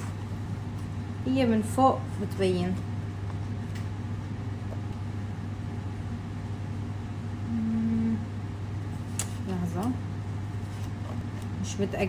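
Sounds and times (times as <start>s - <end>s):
steady low hum: 0.0s - 12.0s
person humming a note: 7.5s - 8.3s.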